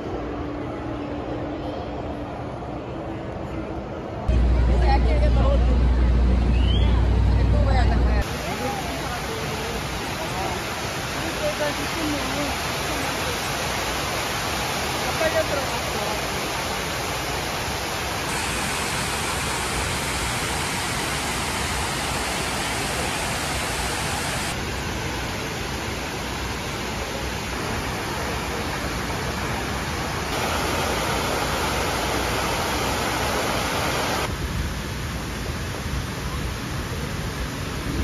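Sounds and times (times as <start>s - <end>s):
water rushing down waterfall walls: 8.2s - 38.0s.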